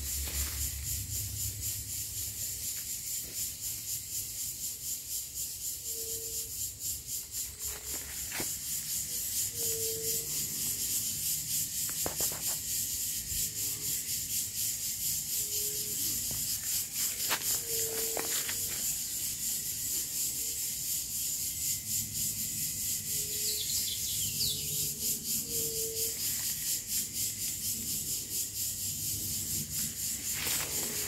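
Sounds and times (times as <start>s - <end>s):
insects chirring: 0.0s - 31.0s.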